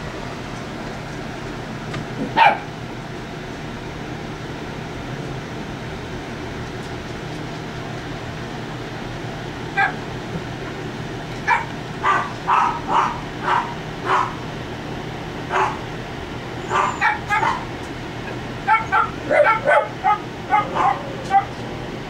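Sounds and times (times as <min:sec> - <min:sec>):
puppies yipping and barking: 0:02.2 - 0:02.8, 0:11.4 - 0:14.5, 0:15.5 - 0:15.9, 0:16.6 - 0:21.7.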